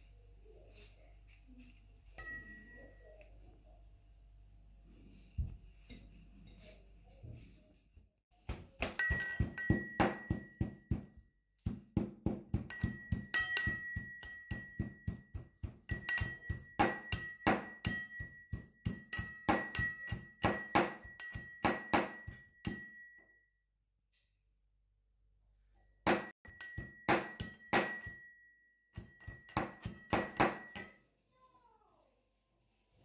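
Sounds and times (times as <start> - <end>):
metal pestle pounding in mortar: 8.5 - 23.0, 26.1 - 28.3, 29.0 - 31.0.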